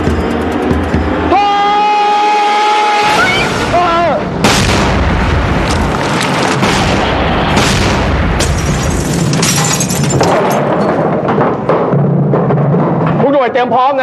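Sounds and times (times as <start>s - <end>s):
rumbling explosion booms: 3.5s - 13.1s.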